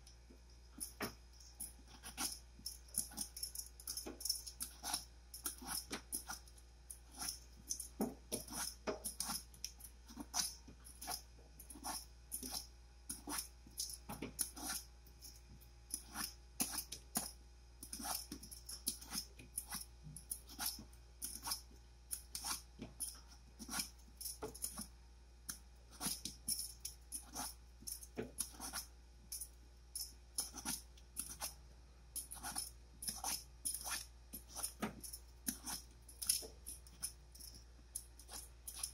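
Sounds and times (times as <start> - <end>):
vegetable peeler scraping: 4.2 - 6.5, 7.1 - 9.5, 10.1 - 14.8, 15.9 - 22.7, 32.3 - 37.1.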